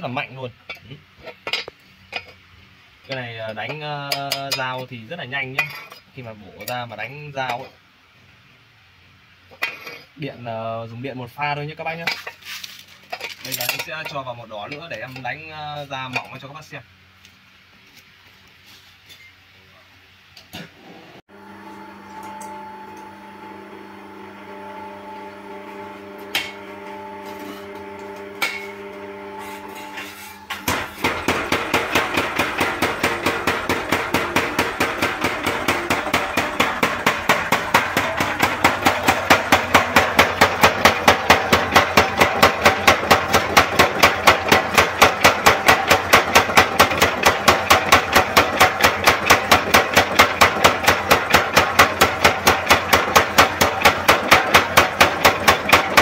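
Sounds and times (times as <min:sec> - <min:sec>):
power hammer motor humming: 0:21.3 - 0:56.0
power hammer striking: 0:25.1 - 0:56.0.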